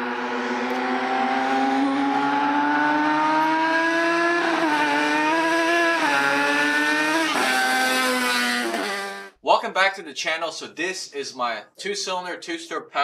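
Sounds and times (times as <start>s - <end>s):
two-stroke mower engine revving: 0.0s - 9.3s.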